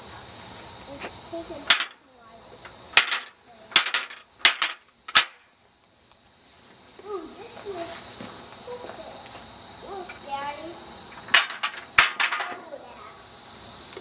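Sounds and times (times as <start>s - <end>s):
steel target plates clanking: 1.6s - 2.0s, 2.9s - 5.4s, 11.2s - 12.6s.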